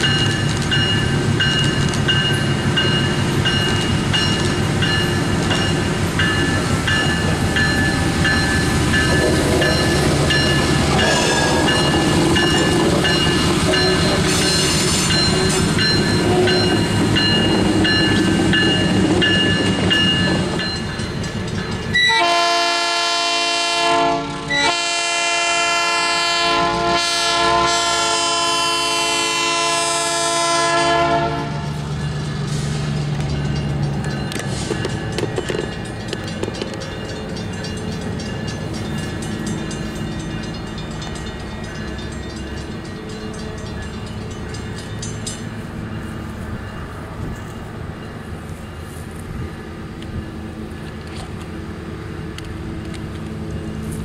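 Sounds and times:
diesel locomotive engine running: 0.0s - 54.0s
locomotive air horn blasts: 22.0s - 31.8s.

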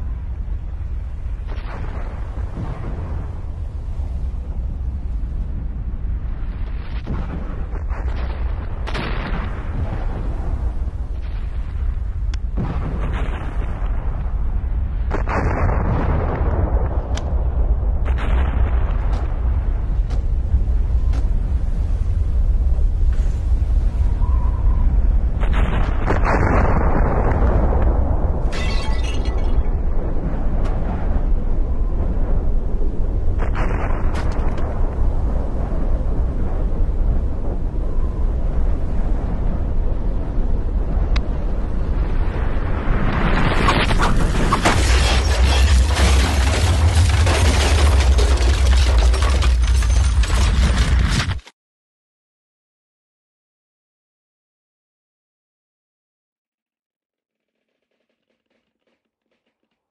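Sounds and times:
deep volcanic rumble: 0.0s - 28.6s, 29.2s - 51.1s
crackling and sharp cracks: 15.0s - 20.5s, 33.4s - 35.8s, 43.0s - 51.5s.

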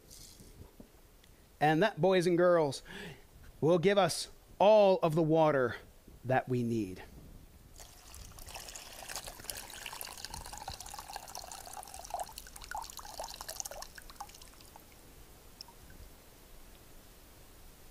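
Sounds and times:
water pouring into plastic bowl: 7.8s - 15.0s.

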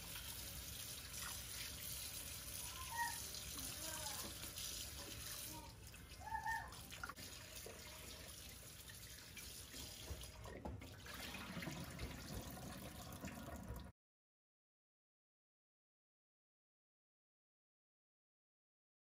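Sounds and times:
water poured off: 0.0s - 13.9s
tap running into a bowl: 9.7s - 13.8s.

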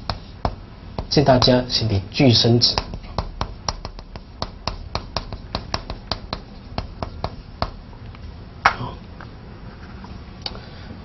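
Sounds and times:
chalk tapping on blackboard: 0.0s - 1.7s, 2.6s - 7.8s.

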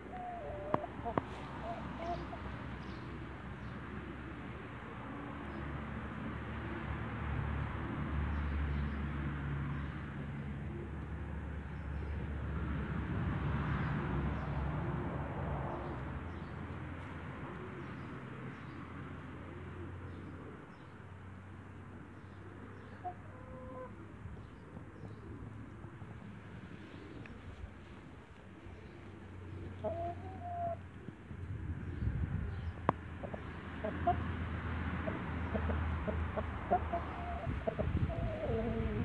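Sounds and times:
chickens clucking: 0.0s - 2.6s, 29.0s - 30.8s, 33.2s - 34.3s, 35.0s - 39.0s.

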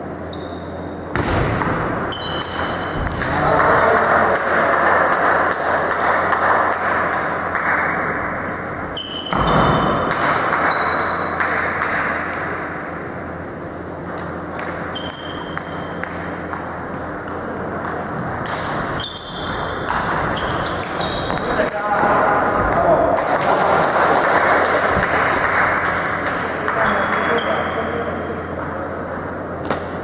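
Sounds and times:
table tennis balls clicking: 14.0s - 27.4s.

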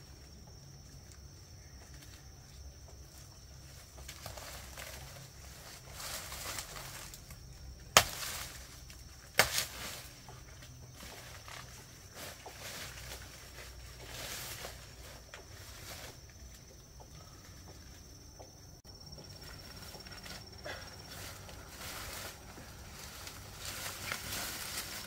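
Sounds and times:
faint rustling: 9.7s - 25.0s.

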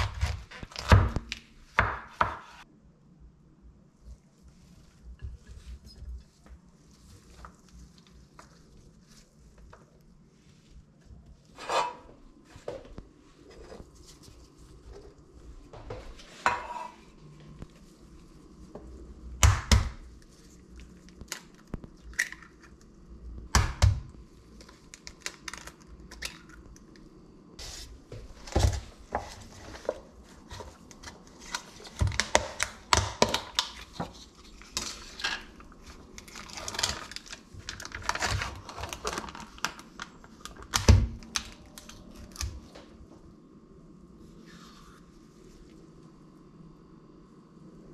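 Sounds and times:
eggs cracking: 20.6s - 23.8s.

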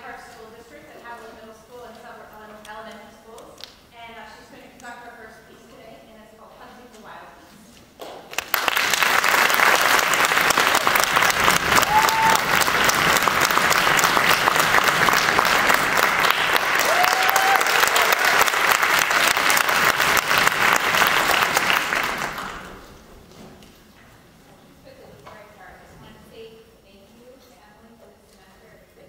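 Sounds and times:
audience applauding: 8.3s - 22.9s.

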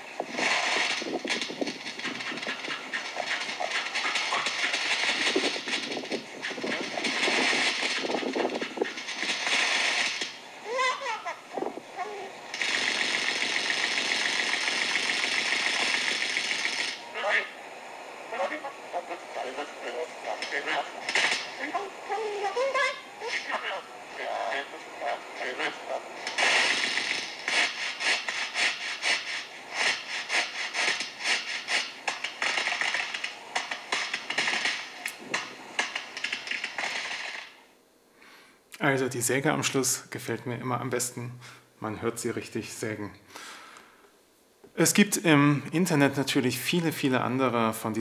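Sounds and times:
bird mechanical hiss: 0.2s - 17.1s, 26.2s - 37.4s
bird machine-like rattle: 0.4s - 10.4s, 12.5s - 17.0s, 26.2s - 37.6s.

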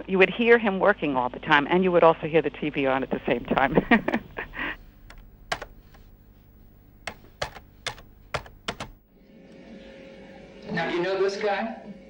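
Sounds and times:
keyboard key clicks: 5.0s - 6.1s, 7.0s - 9.0s.

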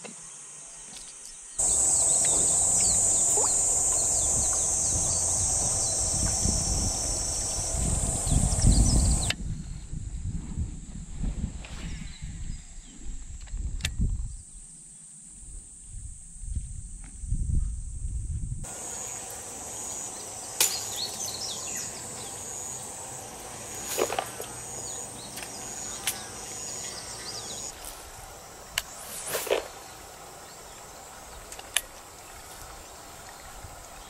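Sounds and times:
insects trilling: 0.0s - 9.4s, 18.6s - 34.0s
bird calls: 0.7s - 9.4s, 18.7s - 27.7s
fishing tackle clicks and swishes: 23.8s - 26.4s, 28.7s - 29.8s.

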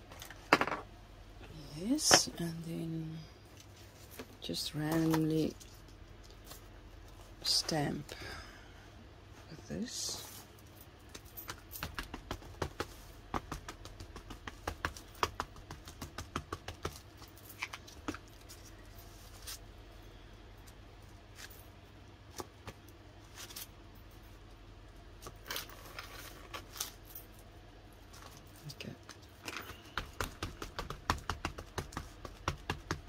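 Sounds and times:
stamp tapping on paper: 11.8s - 17.0s, 29.7s - 33.0s.

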